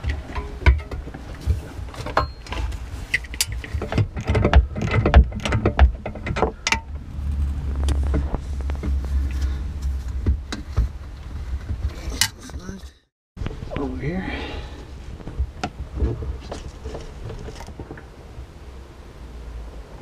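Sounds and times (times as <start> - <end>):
low rumble: 5.6 - 20.0.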